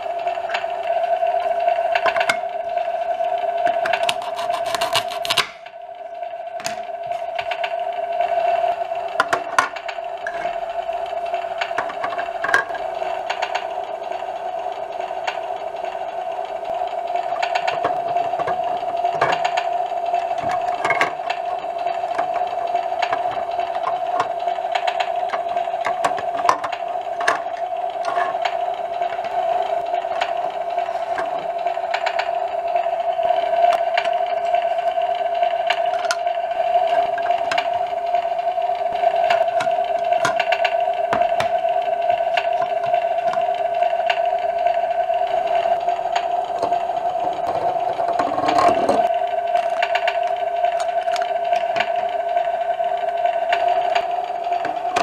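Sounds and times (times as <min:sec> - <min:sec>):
plastic toys clicking and tapping: 0:03.6 - 0:05.7, 0:09.1 - 0:10.5, 0:11.2 - 0:14.2, 0:16.8 - 0:32.3, 0:35.6 - 0:38.3, 0:38.9 - 0:55.0.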